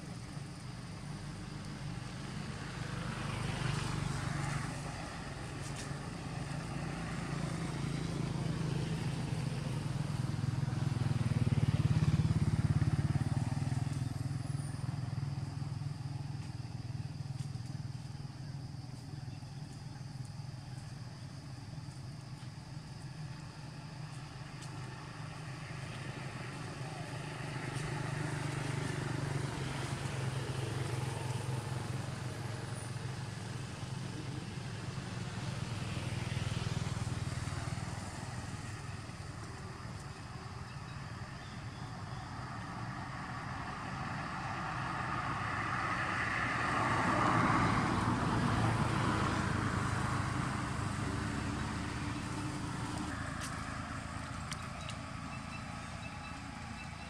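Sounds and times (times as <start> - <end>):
vehicle engines rumbling: 0.0 - 57.0
vehicles passing: 0.0 - 57.0.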